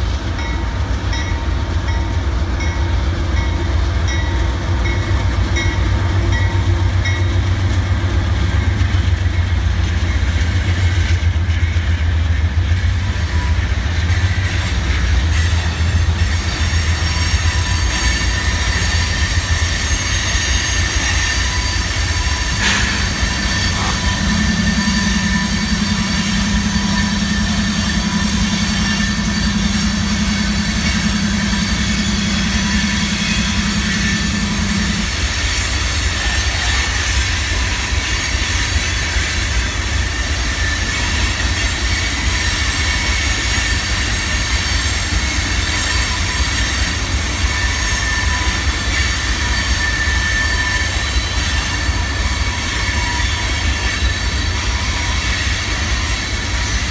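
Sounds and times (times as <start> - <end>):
diesel locomotives rumbling: 0.0 - 56.9
thin wheel squeal: 16.8 - 38.8, 41.9 - 56.9
sharp metal clank: 22.6 - 24.0.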